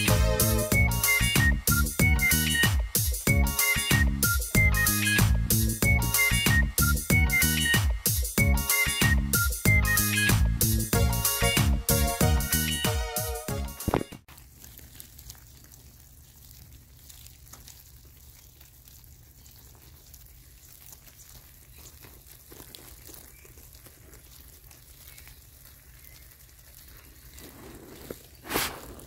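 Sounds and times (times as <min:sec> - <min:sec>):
light crackles and ticks: 0:14.2 - 0:29.0.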